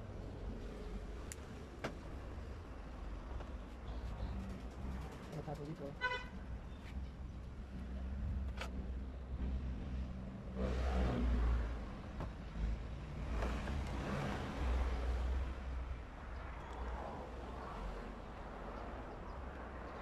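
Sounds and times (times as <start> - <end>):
road traffic rumble: 0.0 - 20.0
car horn toot: 6.0 - 6.4.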